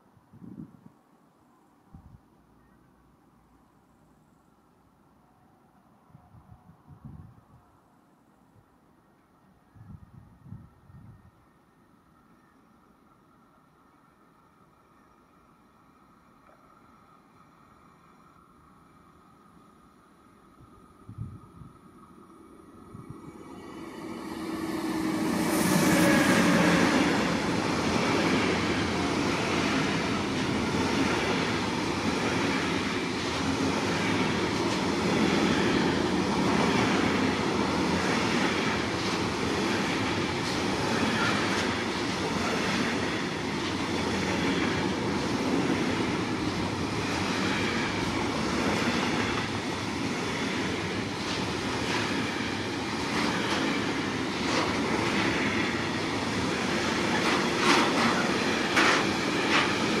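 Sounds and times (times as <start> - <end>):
locomotive passing: 20.1 - 60.0
wheels clacking over rail joints: 57.0 - 60.0.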